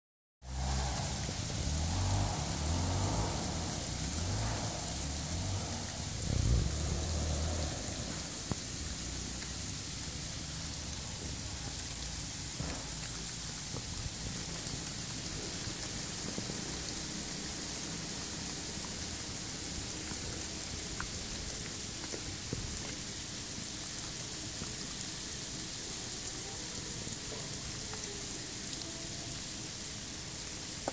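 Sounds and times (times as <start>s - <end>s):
sleet hissing on snow: 0.4s - 9.3s.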